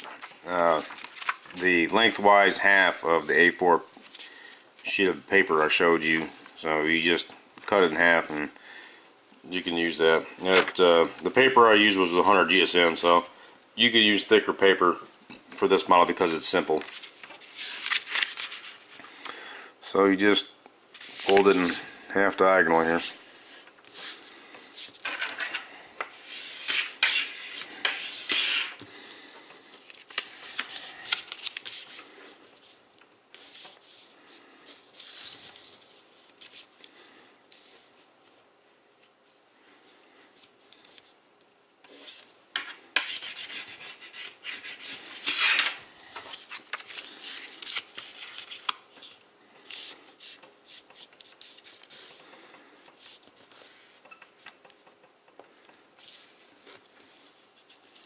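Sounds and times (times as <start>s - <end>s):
paper rustling: 0.0s - 2.2s, 16.1s - 19.1s, 21.0s - 21.8s, 22.7s - 38.4s, 43.0s - 54.8s
paper sliding on wooden table: 26.2s - 28.9s.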